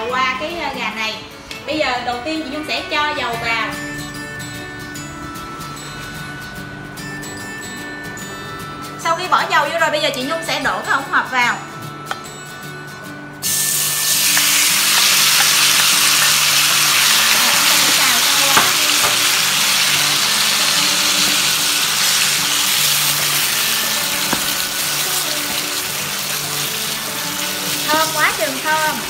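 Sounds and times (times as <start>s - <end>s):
chicken sizzling in oil: 13.4s - 29.0s
spatula tapping pan: 17.3s - 19.4s, 23.1s - 25.9s.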